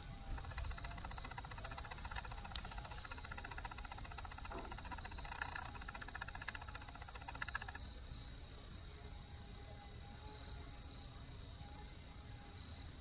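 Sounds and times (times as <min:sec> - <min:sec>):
rapid mechanical clatter: 0:00.0 - 0:08.0
high insect chirps: 0:00.0 - 0:13.0.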